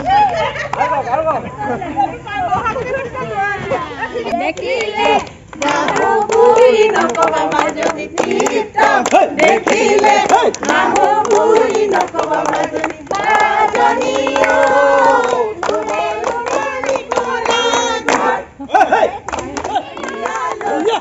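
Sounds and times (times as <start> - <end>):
group of people singing: 4.2 - 21.0
people clapping in time: 4.4 - 21.0.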